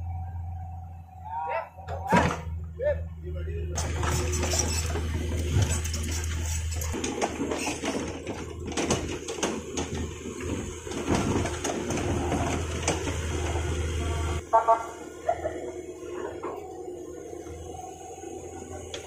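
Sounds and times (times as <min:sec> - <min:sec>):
diesel engine running: 0:00.0 - 0:19.0
knocks and clatter: 0:03.8 - 0:13.6.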